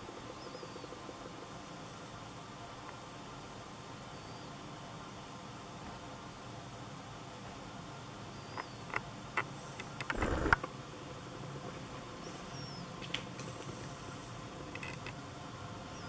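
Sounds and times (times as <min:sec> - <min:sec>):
faint high squeaky chirps: 0:08.3 - 0:08.9.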